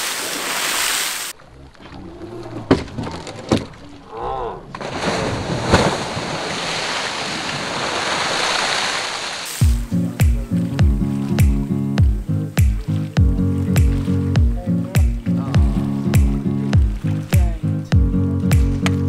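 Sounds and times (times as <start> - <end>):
heavy water splashing: 0.0 - 19.0.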